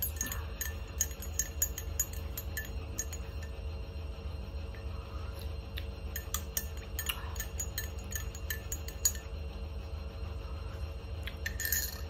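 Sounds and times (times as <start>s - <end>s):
spoon clinking in a mug: 0.0s - 3.6s, 6.1s - 9.4s, 11.3s - 12.0s.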